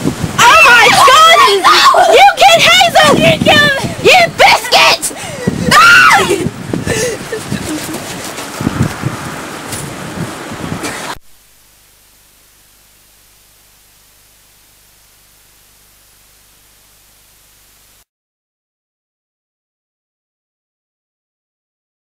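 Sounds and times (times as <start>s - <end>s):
tv static hiss: 10.8s - 18.1s.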